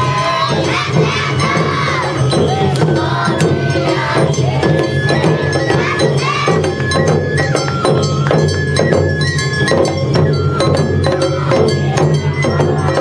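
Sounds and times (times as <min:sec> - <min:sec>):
dancers shouting chants: 0:00.0 - 0:06.6
bamboo flute high notes: 0:00.0 - 0:13.0
taiko drums beating: 0:00.0 - 0:13.0.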